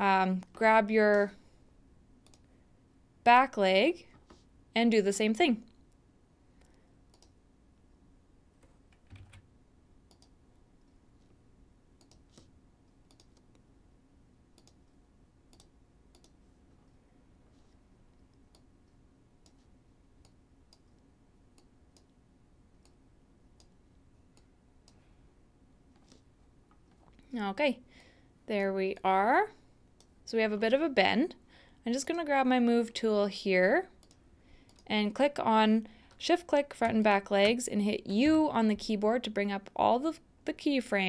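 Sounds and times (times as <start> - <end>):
computer mouse clicks: 2.2 - 2.5, 6.6 - 7.4, 10.1 - 11.0, 12.0 - 13.6, 14.6 - 17.0, 18.2 - 22.2, 34.0 - 34.9.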